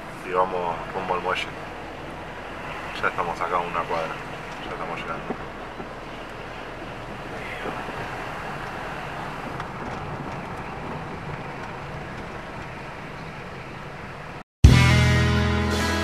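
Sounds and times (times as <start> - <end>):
car cabin road and engine noise: 0.0 - 14.5
loud guitar and drum music: 14.6 - 16.0.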